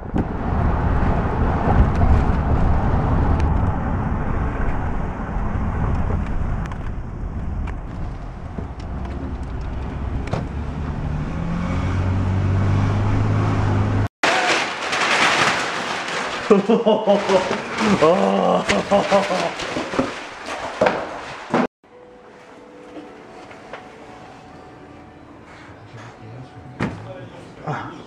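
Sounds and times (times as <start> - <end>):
car road noise rumble: 0.0 - 14.1
engine hum: 0.0 - 14.1.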